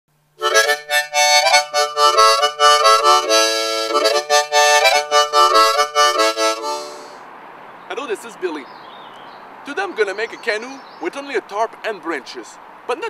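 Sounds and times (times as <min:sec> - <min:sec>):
harmonica tune: 0:00.4 - 0:07.2.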